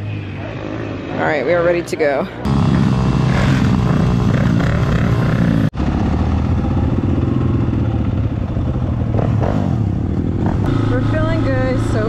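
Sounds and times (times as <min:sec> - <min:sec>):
dirt bike engine running: 0:02.4 - 0:12.0.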